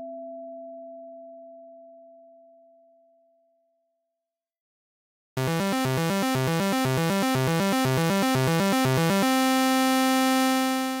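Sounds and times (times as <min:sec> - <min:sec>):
buzzy synthesized tones: 0:05.4 - 0:11.0.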